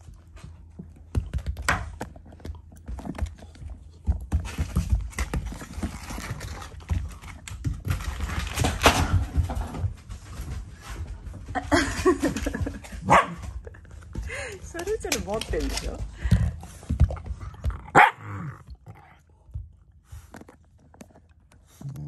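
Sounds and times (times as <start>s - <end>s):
dogs scuffling thumps and knocks: 2.8s - 13.0s.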